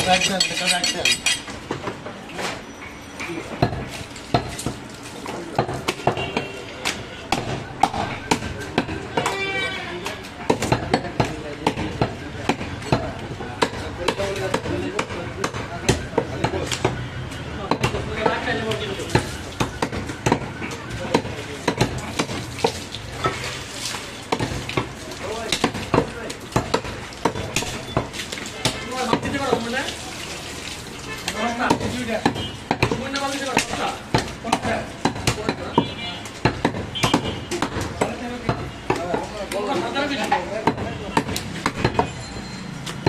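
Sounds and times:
cleaver chopping on wooden block: 0:13.6 - 0:17.0, 0:21.1 - 0:22.8, 0:25.5 - 0:29.7, 0:31.6 - 0:39.2, 0:40.6 - 0:42.2.

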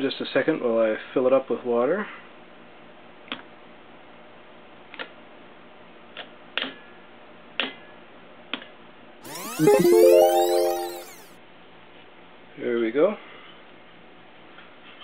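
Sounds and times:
sweeping sound effect with tone: 0:09.3 - 0:11.3.

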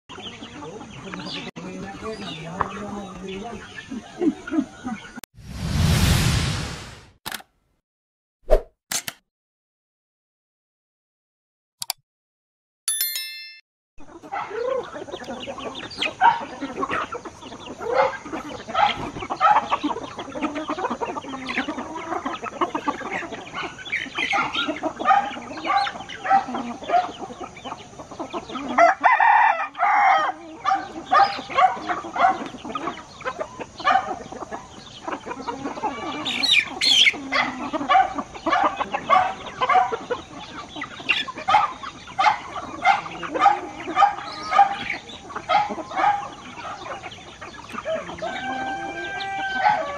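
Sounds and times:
chickens clucking: 0:00.1 - 0:05.2, 0:14.0 - 0:49.9
roosters crowing: 0:14.1 - 0:49.9.

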